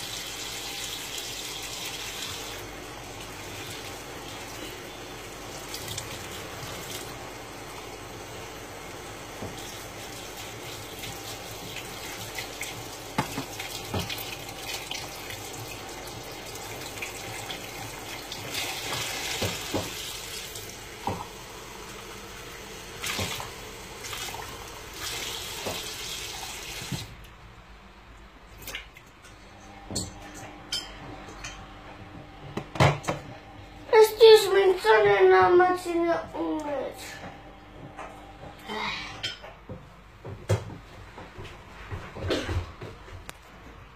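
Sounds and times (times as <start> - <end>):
tap running into sink: 13.1 - 14.2, 18.8 - 20.0, 21.0 - 21.3, 25.0 - 26.1.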